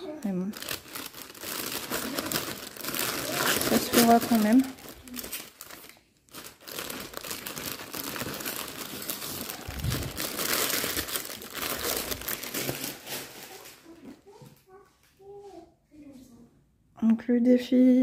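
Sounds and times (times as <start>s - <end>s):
plastic bag crinkling: 0.0s - 14.2s.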